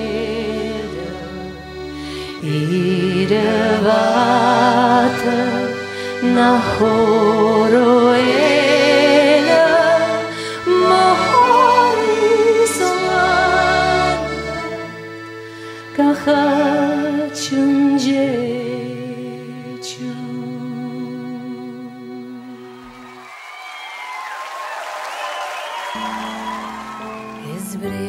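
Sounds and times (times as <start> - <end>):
held accompaniment chords: 0.0 - 17.9
slow song with vibrato voice: 0.0 - 23.3, 25.6 - 28.0.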